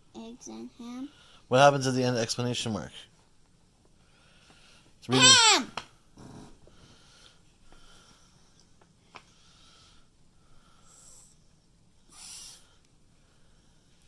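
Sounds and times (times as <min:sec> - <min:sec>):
person breathing faintly: 0:06.2 - 0:14.0
sniff or sharp exhale: 0:12.1 - 0:12.8.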